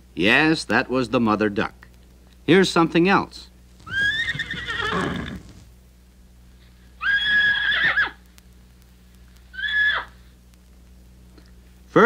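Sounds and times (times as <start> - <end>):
faint low hum: 0.0 - 12.0
horse whinnying: 3.8 - 5.6, 7.0 - 8.2.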